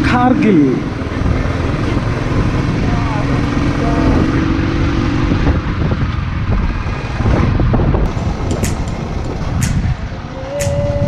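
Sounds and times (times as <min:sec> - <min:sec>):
motorcycle engine running: 0:00.0 - 0:11.0
wind rush on microphone: 0:00.0 - 0:11.0
background music: 0:08.2 - 0:11.0
sharp ticks: 0:08.4 - 0:10.0.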